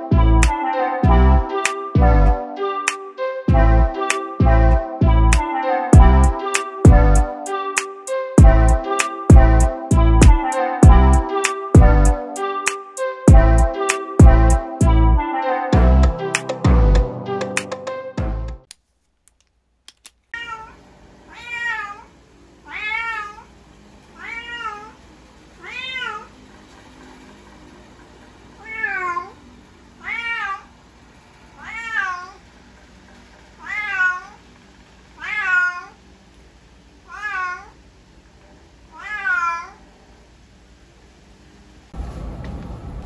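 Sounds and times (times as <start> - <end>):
cat meowing: 20.4 - 23.5, 24.2 - 25.0, 25.6 - 26.3, 28.6 - 29.4, 30.0 - 30.7, 31.6 - 32.4, 33.6 - 34.4, 35.2 - 36.0, 37.1 - 37.8, 38.9 - 39.8.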